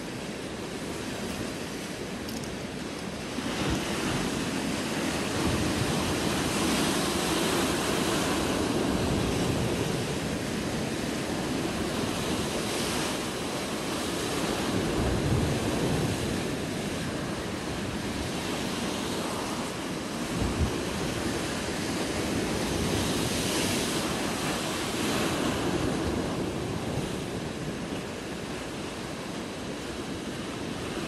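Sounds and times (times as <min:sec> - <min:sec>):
wind rumbling on microphone: 0:00.0 - 0:31.0.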